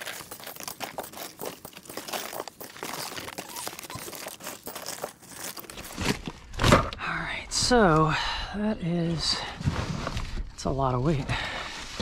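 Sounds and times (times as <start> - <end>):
plastic rustling and crinkling: 0.0 - 6.7.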